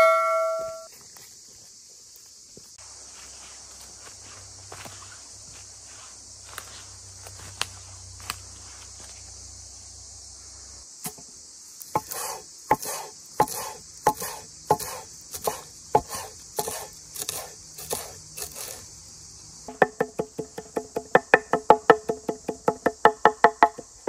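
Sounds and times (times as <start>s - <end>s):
insects chirring: 0.0s - 24.0s
knife chopping on wooden board: 12.0s - 18.1s.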